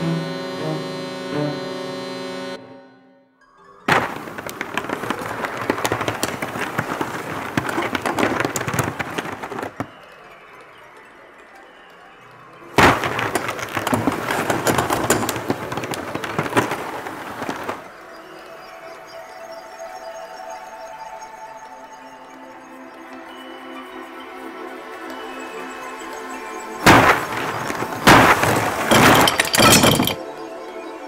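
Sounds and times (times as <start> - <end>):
wooden floorboards cracking and creaking: 3.9 - 9.9, 12.8 - 17.9, 26.8 - 30.2.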